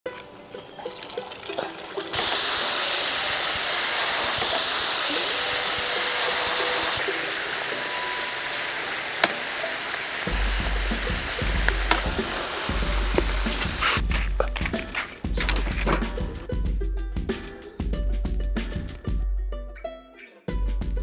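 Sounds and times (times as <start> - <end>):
oil sizzling in a wok: 0.6 - 14.1.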